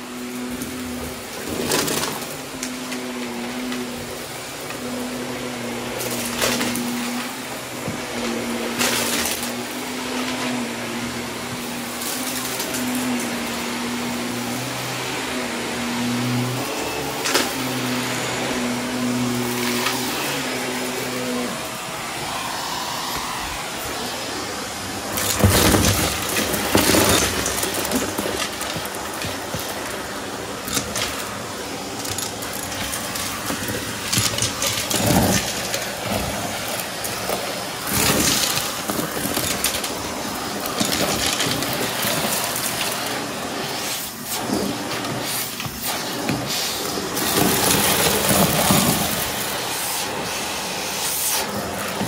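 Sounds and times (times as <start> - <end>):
vacuum cleaner on carpet: 0.0 - 52.0
debris rattling up vacuum tube: 0.2 - 14.8, 24.8 - 49.9.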